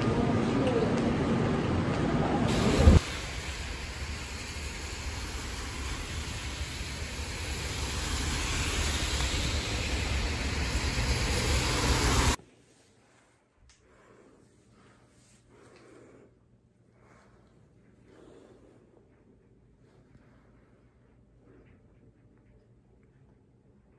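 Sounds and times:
subway train rumble: 0.0s - 12.4s
rain on a wet street: 2.5s - 12.4s.

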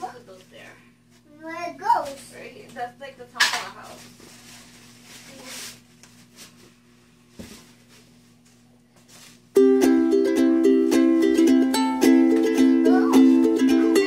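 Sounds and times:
plastic wrapping rustling: 3.7s - 9.6s.

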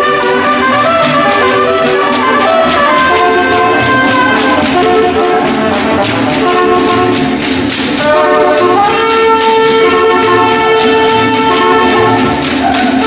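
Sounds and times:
strummed small guitar: 0.0s - 13.0s
trumpets and trombone chords: 0.0s - 13.0s
upright bass: 0.0s - 13.0s.

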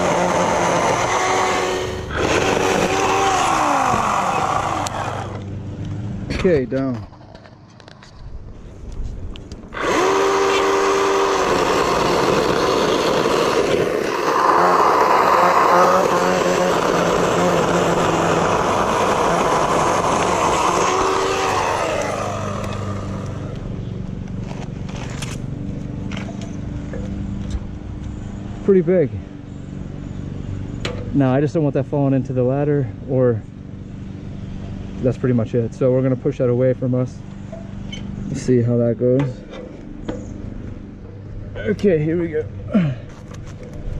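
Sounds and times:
chainsaw cutting a limb: 0.0s - 5.5s, 9.7s - 23.7s.

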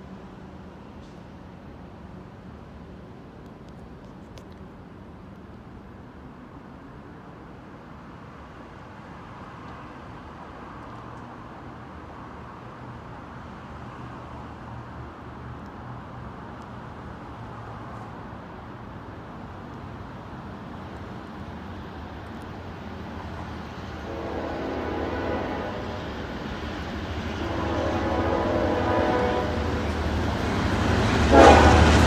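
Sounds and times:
diesel locomotives droning: 8.9s - 32.0s.

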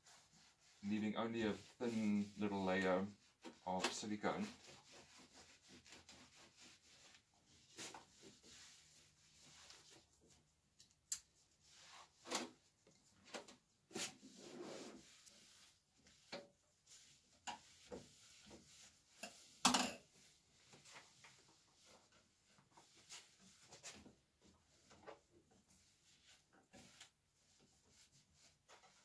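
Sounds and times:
cloth rubbing on metal: 0.0s - 10.6s, 11.3s - 29.0s.

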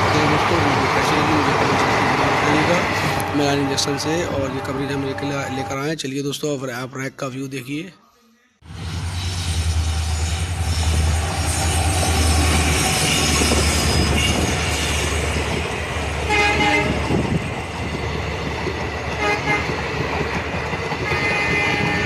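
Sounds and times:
rushing wheel and coach noise: 0.0s - 4.9s, 8.7s - 22.0s
train horn: 13.1s - 14.5s, 16.3s - 17.0s, 19.2s - 19.8s, 21.0s - 22.0s.

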